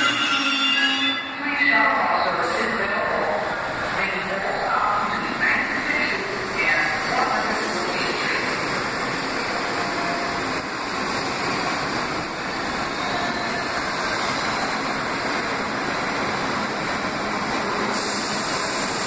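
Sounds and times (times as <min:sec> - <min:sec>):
train wheels rushing on rails: 0:02.3 - 0:19.0.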